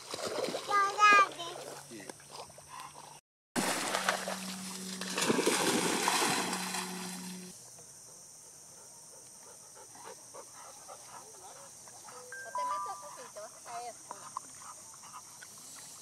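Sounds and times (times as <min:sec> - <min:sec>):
dog splashing through water: 0:00.0 - 0:01.8, 0:03.6 - 0:07.4.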